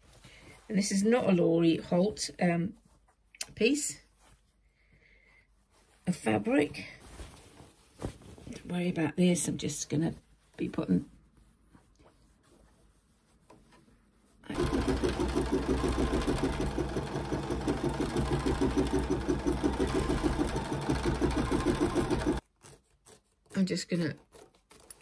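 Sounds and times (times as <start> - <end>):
embroidery machine stitching: 14.5 - 22.4.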